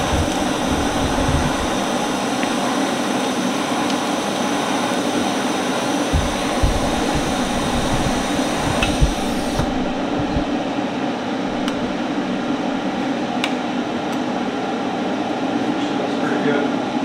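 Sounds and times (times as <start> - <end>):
constant hum: 0.0 - 2.8, 6.1 - 14.5
welding arc hissing: 0.0 - 3.0, 4.6 - 13.2.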